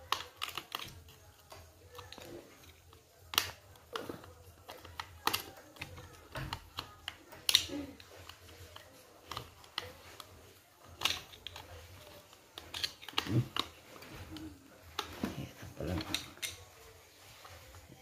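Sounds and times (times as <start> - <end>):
screwdriver clicking on plastic cover: 0.0 - 13.7.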